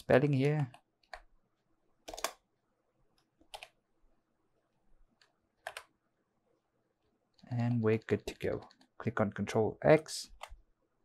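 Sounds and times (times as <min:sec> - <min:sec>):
keyboard keystrokes: 0:02.0 - 0:02.4, 0:05.2 - 0:05.9.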